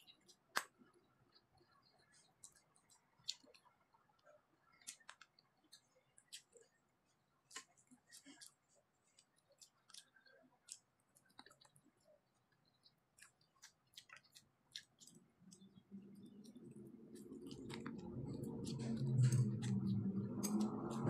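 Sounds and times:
chewing: 0:00.0 - 0:21.0
low hum: 0:15.5 - 0:21.0.

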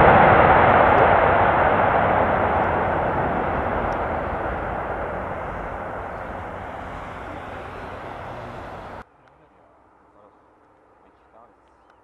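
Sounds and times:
jet engine roar: 0:00.0 - 0:09.0.

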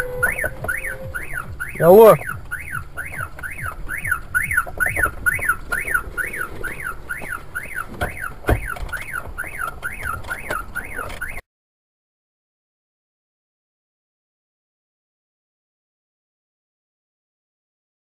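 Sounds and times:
car alarm siren: 0:00.0 - 0:11.4.

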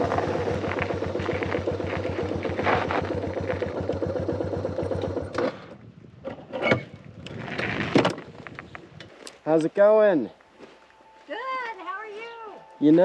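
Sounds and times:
motorcycle engine running: 0:00.0 - 0:05.4.

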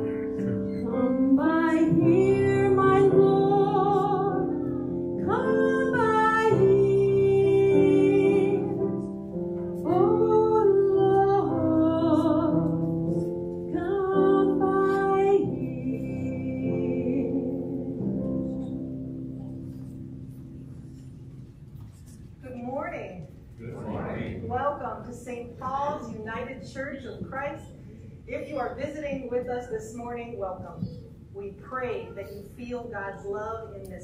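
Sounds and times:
piano accompaniment: 0:00.0 - 0:22.4
woman singing a hymn: 0:00.9 - 0:09.2, 0:09.8 - 0:13.0, 0:13.6 - 0:18.6.

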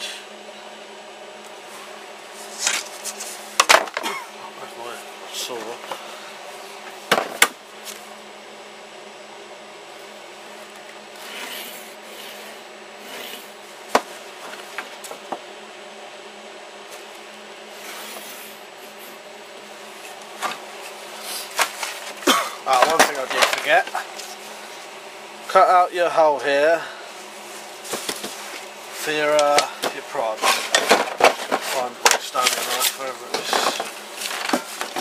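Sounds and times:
steady background hum: 0:00.0 - 0:35.0.

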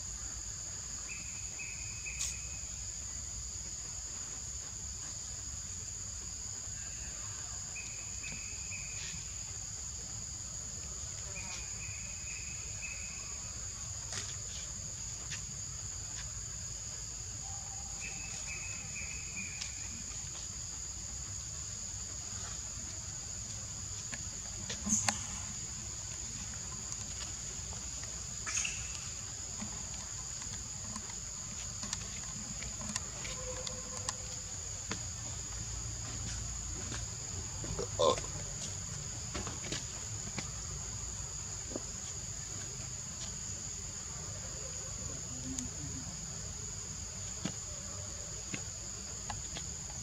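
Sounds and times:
faint chirps: 0:24.0 - 0:34.6.

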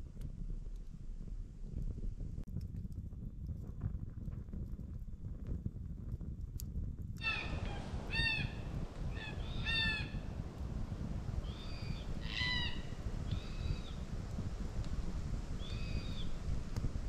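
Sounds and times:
wind rumble on microphone: 0:00.0 - 0:17.0
birds calling: 0:07.2 - 0:10.7, 0:11.4 - 0:14.0.

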